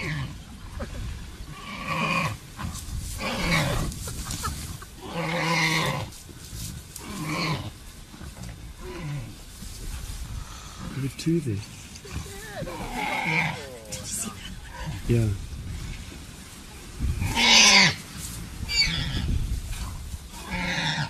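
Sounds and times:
harsh growling calls: 11.9 - 16.0, 17.2 - 18.0.

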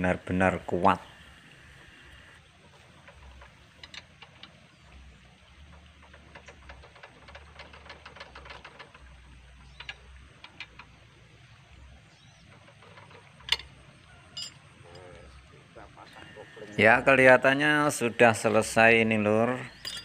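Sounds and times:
wrench clicking: 3.0 - 4.6
sharp metal clank: 19.7 - 20.0.

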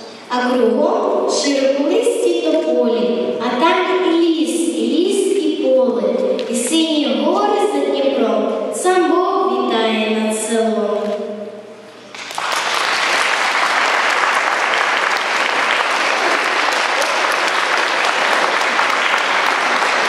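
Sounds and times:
audience applause: 12.1 - 20.0.

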